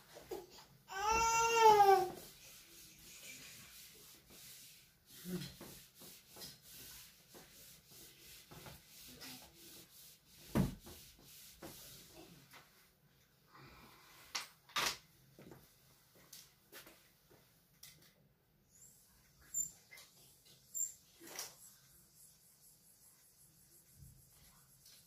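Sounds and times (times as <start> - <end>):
whiteboard being wiped: 1.2 - 13.0, 18.8 - 25.0
thump: 10.5 - 10.8.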